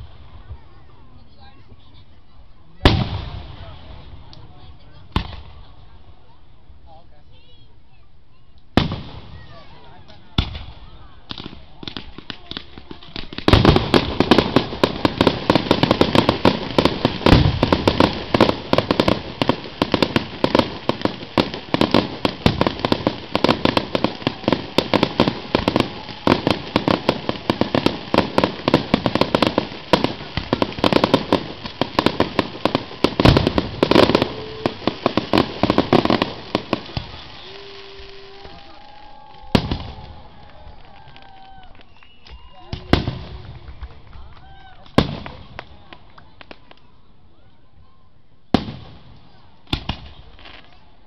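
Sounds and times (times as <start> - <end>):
fireworks bangs and crackles: 2.8 - 6.3, 8.7 - 46.9, 48.5 - 51.0.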